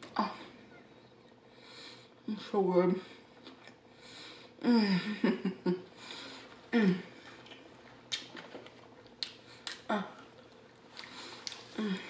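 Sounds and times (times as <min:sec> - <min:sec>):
chewing: 0:07.2 - 0:11.8.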